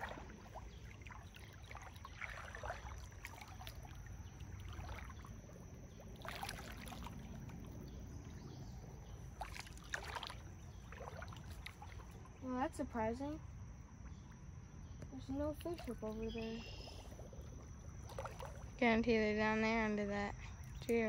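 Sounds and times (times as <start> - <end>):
footsteps squelching through water: 0.0 - 12.4, 15.5 - 18.8
low steady rumble: 0.0 - 21.0.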